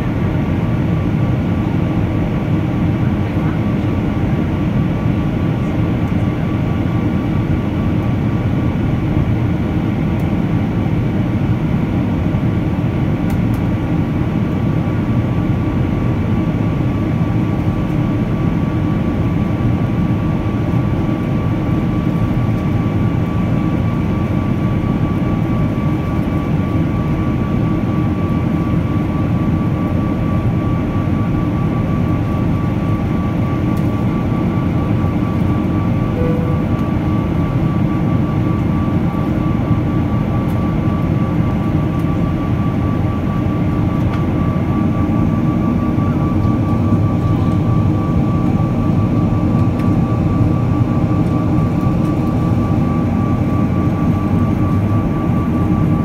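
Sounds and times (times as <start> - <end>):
jet engines heard inside cabin: 0.0 - 56.0.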